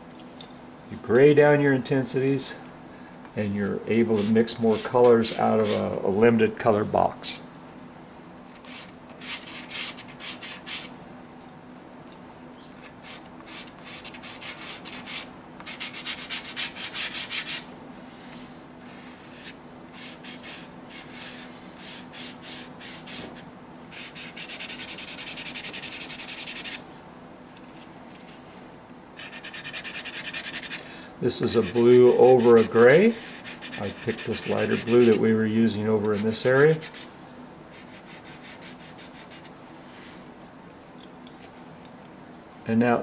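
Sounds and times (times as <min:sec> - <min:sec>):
pastel scraping on paper: 0:04.1 - 0:05.9, 0:29.2 - 0:30.8, 0:31.6 - 0:35.2, 0:37.7 - 0:39.5.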